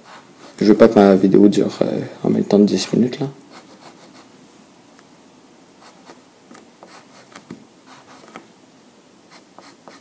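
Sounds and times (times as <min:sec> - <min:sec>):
pencil scratching on paper: 0:00.0 - 0:00.7, 0:03.5 - 0:04.3, 0:06.8 - 0:08.4, 0:09.3 - 0:10.0.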